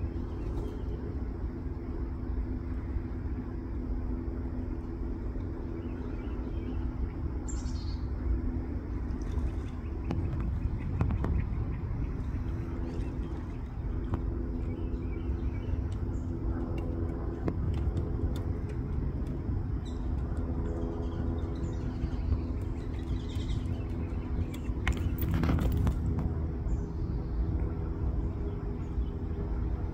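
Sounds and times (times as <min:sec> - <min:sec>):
vehicle engine running: 0:00.0 - 0:29.9.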